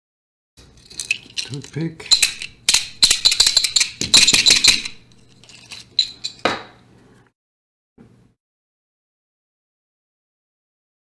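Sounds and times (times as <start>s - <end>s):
small metal tools clinking: 0.6s - 6.6s.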